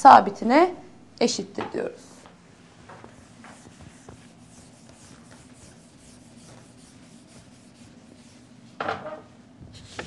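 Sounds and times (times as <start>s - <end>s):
low steady hum: 0.0s - 10.0s
chalk scratching on chalkboard: 3.0s - 8.6s, 9.7s - 10.0s.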